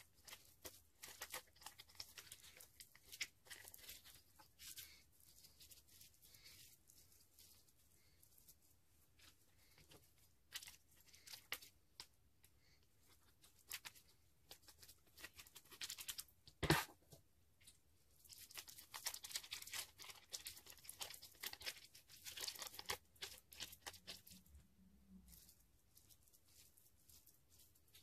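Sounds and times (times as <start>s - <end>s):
plastic packet crinkling: 0.0s - 8.5s, 18.3s - 24.5s.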